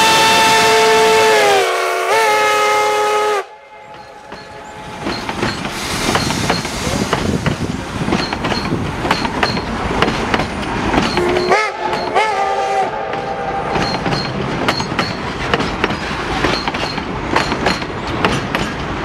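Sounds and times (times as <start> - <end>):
train wheels clicking over rail joints: 3.8 - 12.4, 13.0 - 19.0.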